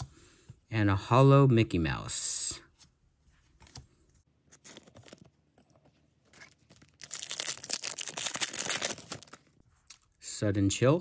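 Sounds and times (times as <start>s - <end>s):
foil wrapper crinkling: 6.3s - 9.6s
foil wrapper tearing: 6.3s - 9.6s.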